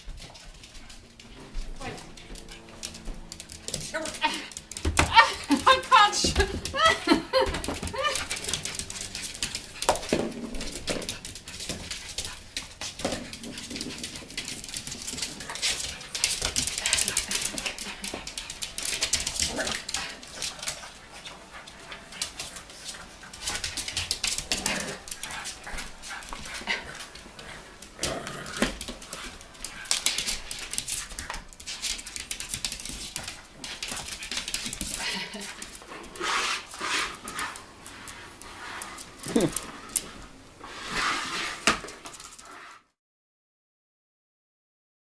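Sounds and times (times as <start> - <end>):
mop scraping wooden floor: 0.0 - 32.2, 35.4 - 42.9
puppy vocalizing: 0.9 - 11.4, 39.1 - 39.8.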